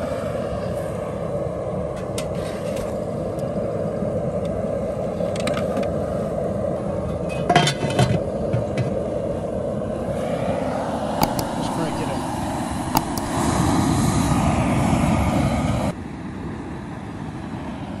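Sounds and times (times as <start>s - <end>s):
gas burner rushing: 7.8s - 15.9s
water boiling in pot: 11.2s - 13.5s.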